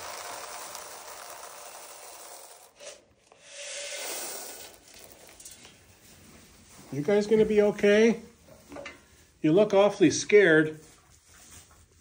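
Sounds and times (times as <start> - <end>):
rustling and scraping: 2.5 - 9.4, 10.8 - 12.0.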